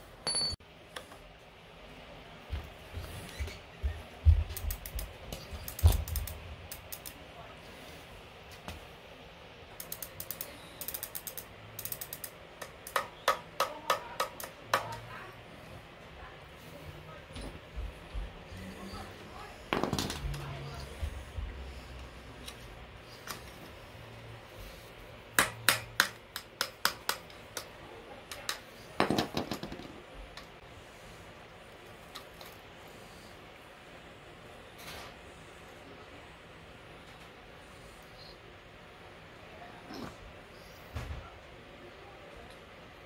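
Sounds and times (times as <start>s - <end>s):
bicycle freewheel clicking: 4.6s - 5.1s, 5.7s - 7.2s, 9.8s - 13.0s.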